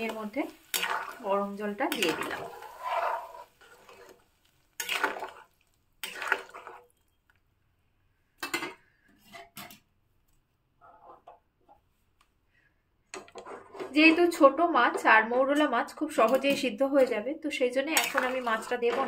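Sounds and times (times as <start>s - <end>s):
utensil scraping a pan: 1.8s - 4.2s, 4.8s - 6.9s, 13.2s - 14.4s, 18.0s - 19.0s.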